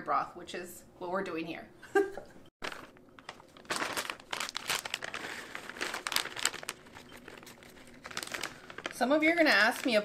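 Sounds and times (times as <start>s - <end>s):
plastic bag crinkling: 2.6s - 10.0s.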